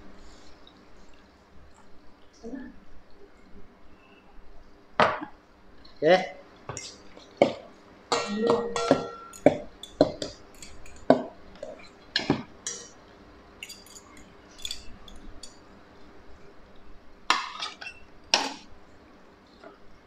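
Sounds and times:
metal utensils clinking in bowl: 8.1s - 13.0s, 13.6s - 15.7s, 17.3s - 18.5s
bowl ringing: 8.2s - 11.0s, 13.6s - 15.6s.

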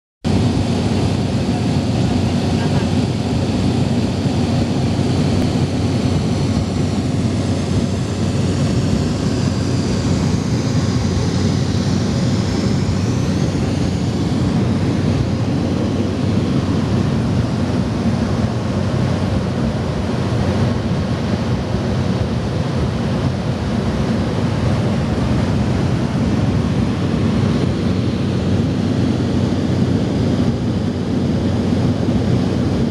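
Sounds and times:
propeller aircraft cabin drone: 0.2s - 32.9s.

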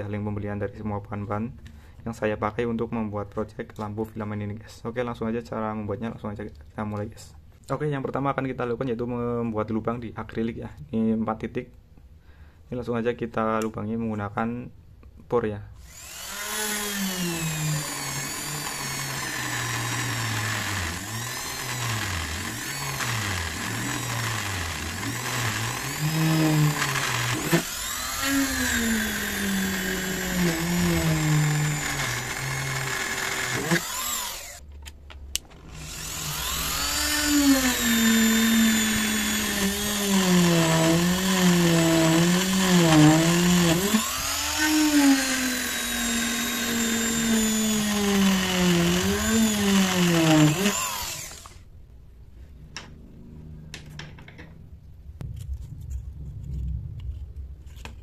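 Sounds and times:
rotary tool drilling plastic: 15.8s - 34.6s, 35.6s - 51.6s.

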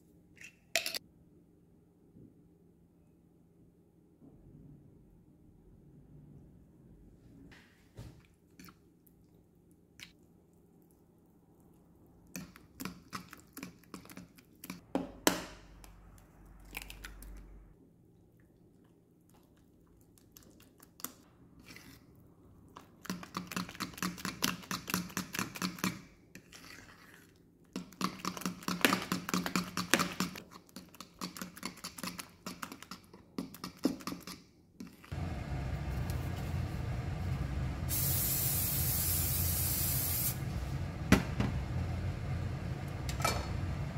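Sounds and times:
spoon beating batter in bowl: 11.7s - 15.9s, 20.1s - 35.2s
steady hiss: 37.8s - 40.4s.

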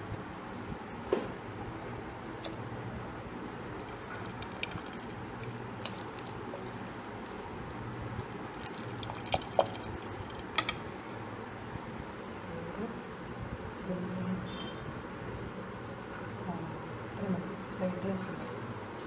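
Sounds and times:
steady low hum: 0.0s - 19.0s
ladle stirring wet rice: 3.8s - 7.5s, 8.4s - 10.8s
ladle clicking against pot: 9.0s - 10.8s.

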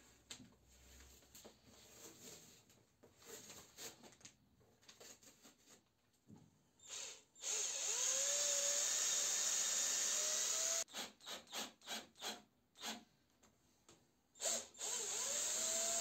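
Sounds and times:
cordless drill driving screw: 6.8s - 13.0s, 14.4s - 16.0s.

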